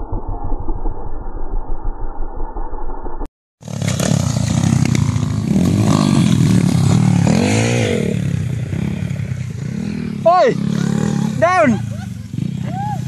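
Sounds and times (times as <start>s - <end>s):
dirt bike engine revving: 3.6s - 13.0s.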